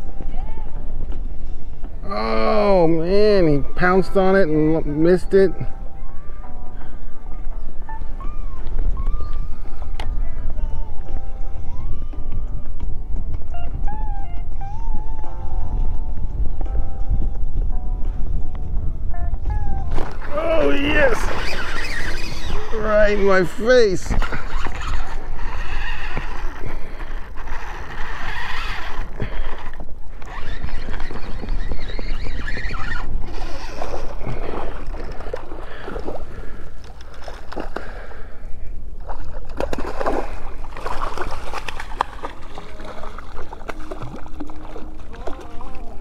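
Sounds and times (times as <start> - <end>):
wind noise on microphone: 0.0 - 46.0
fish splashing in water: 39.0 - 46.0.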